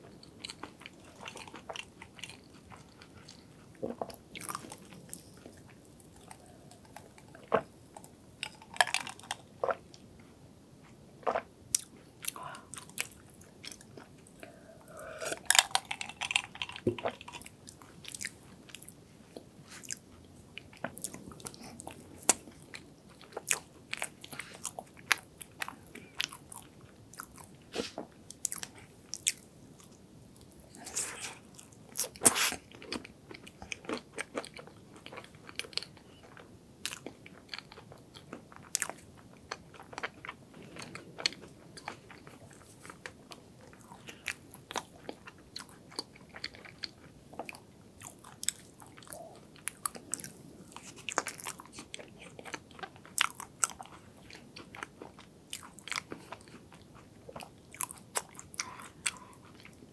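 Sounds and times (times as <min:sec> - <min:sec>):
chewing with sticky mouth clicks: 0:31.6 - 0:59.8.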